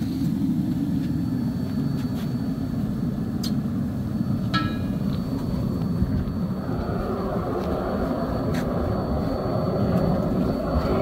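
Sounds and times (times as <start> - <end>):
propane burner roaring: 0.0 - 11.0
ringing metallic clink: 4.4 - 5.2.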